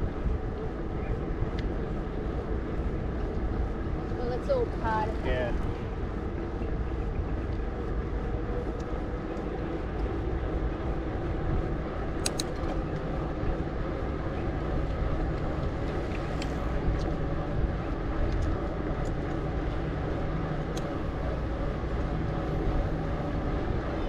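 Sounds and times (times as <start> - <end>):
mountain bike rolling: 0.0 - 24.0
bike clicks and rattles: 12.0 - 13.2, 14.8 - 17.2.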